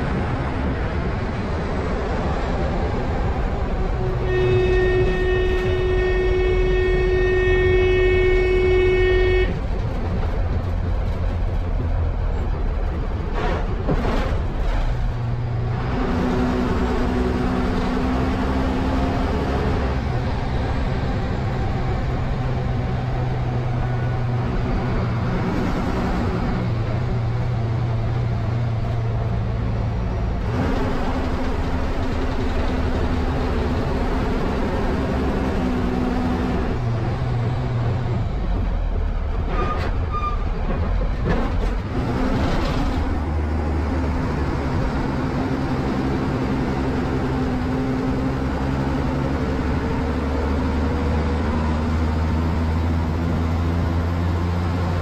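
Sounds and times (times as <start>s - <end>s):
bus engine running: 0.0s - 55.0s
bus horn blast: 3.8s - 9.7s.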